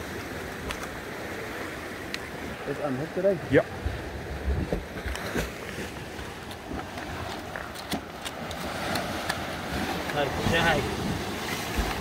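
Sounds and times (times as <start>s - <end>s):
surf washing against rocks: 0.0s - 12.0s
wind noise on microphone: 3.9s - 5.4s.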